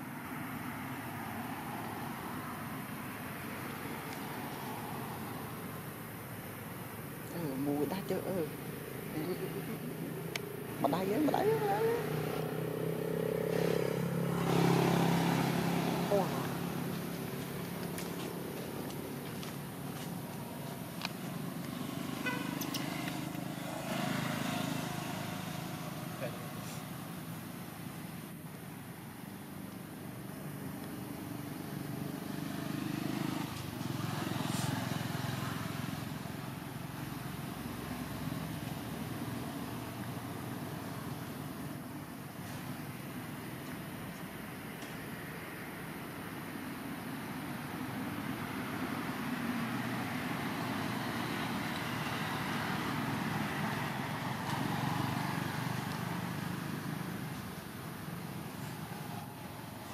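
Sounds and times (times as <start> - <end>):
hiss: 34.3 - 35.1.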